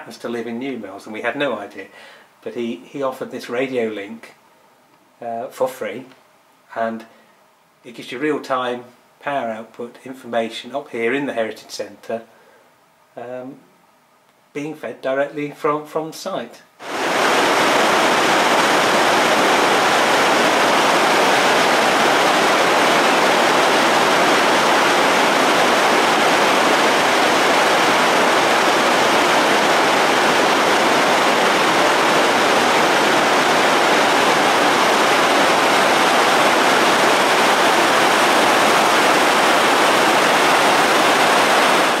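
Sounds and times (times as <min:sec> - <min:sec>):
river water pouring over a weir: 0:16.8 - 0:42.0.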